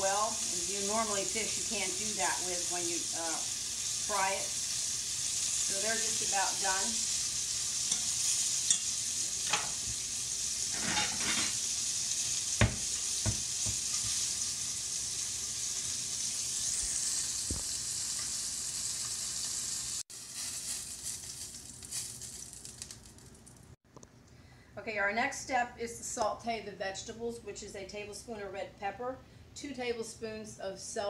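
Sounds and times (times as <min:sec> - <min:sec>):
fish sizzling in a skillet: 0:00.0 - 0:23.8
metal fork clicking on pan: 0:08.7 - 0:08.9.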